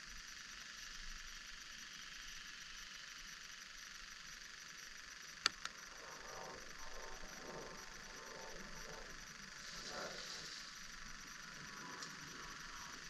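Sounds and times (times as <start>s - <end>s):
sharp ticks: 5.3s - 9.2s, 11.7s - 13.0s
light rain hissing: 5.9s - 13.0s.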